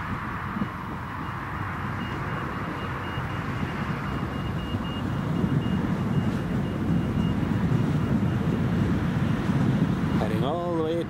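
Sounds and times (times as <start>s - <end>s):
faint high engine whine: 0.0s - 11.0s.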